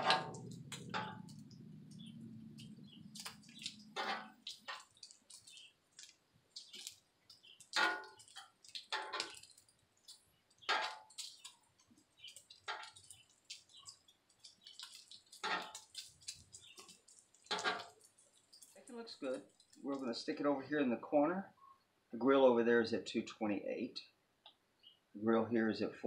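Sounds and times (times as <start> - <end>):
bacon sizzling and popping: 0.0 - 20.0
metal tongs scraping on griddle: 2.6 - 5.5, 15.3 - 18.0.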